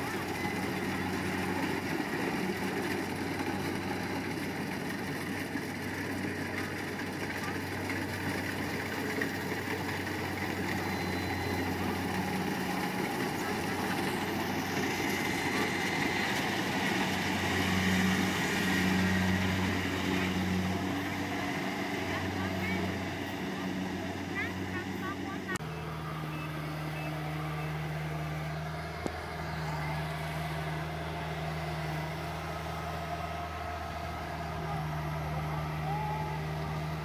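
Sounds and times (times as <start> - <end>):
combine harvester engine hum: 0.0 - 37.0.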